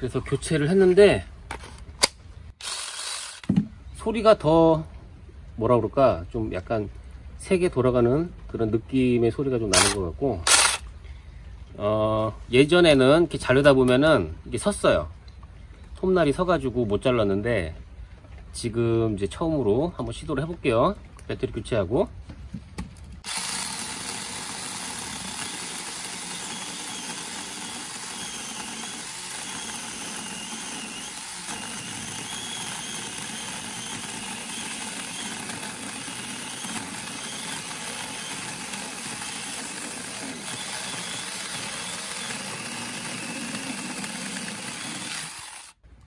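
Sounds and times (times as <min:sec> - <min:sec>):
chainsaw cutting a log: 0:02.6 - 0:03.5, 0:09.8 - 0:10.8, 0:23.2 - 0:45.8.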